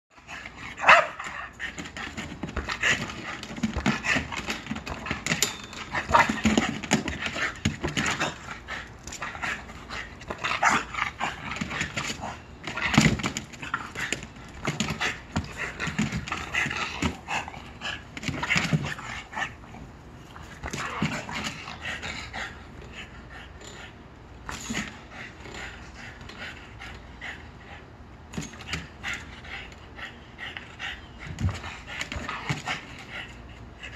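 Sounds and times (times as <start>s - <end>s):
small dog panting: 28.6s - 33.9s.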